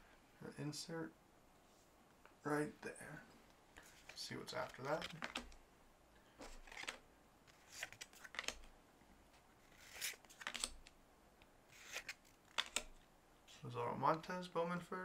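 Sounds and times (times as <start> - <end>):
cards swiping and flicking: 4.0 - 5.6, 6.4 - 8.7, 9.7 - 10.9, 11.7 - 13.0.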